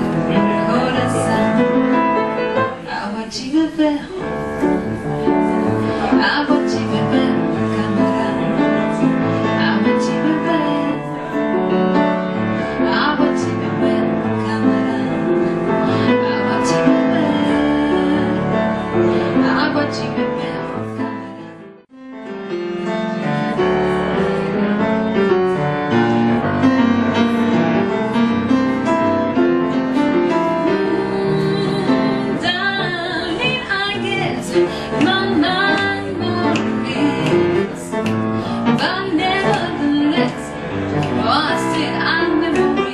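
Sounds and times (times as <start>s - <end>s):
woman singing: 0.0s - 11.8s, 12.7s - 21.7s, 30.4s - 42.9s
piano: 0.0s - 42.9s.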